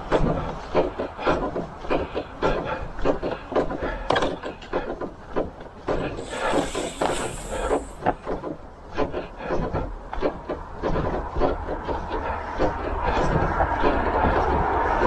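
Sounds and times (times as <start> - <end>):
brief hiss: 6.2 - 8.1.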